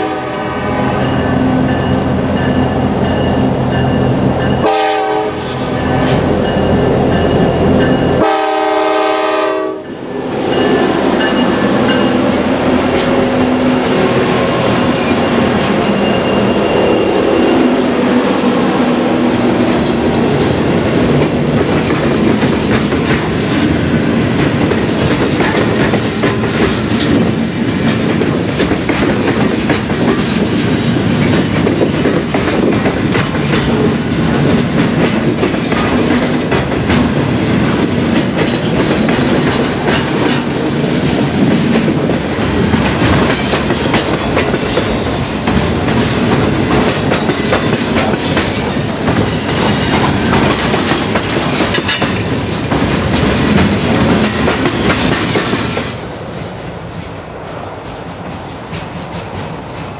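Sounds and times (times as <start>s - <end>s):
freight train wheels on rail: 0.0s - 59.9s
wheels clicking over rail joints: 19.3s - 56.0s.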